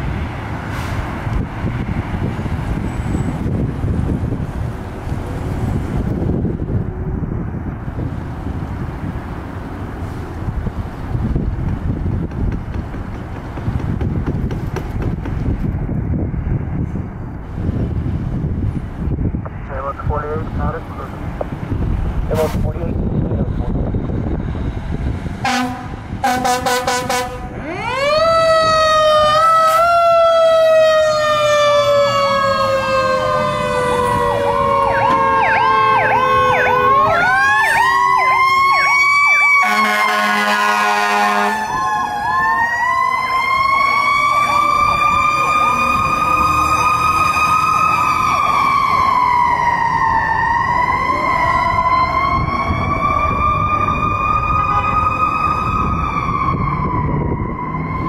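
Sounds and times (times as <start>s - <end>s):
wailing siren: 22.6s - 58.0s
air horn blasts: 25.4s - 27.6s, 39.6s - 41.7s, 54.7s - 55.0s
electronic siren yelp: 26.2s - 58.0s.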